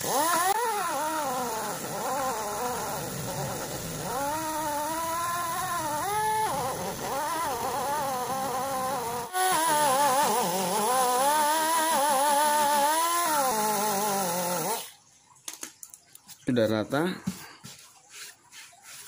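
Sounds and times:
buffing grinder whining: 0.0s - 14.9s.

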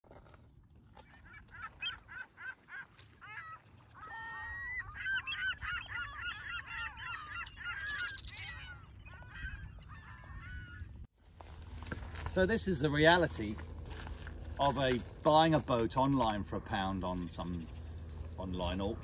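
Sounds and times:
geese honking: 1.0s - 11.0s.

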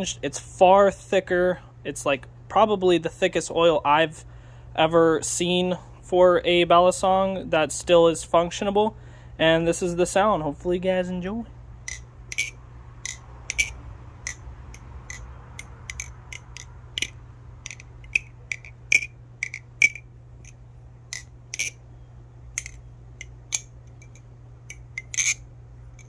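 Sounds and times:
butterfly knife metal clicks: 11.9s - 21.8s, 22.6s - 25.4s.

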